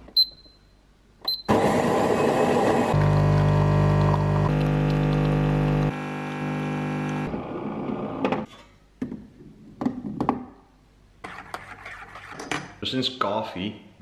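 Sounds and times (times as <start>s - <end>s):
coffee machine pump droning: 1.5s - 7.3s.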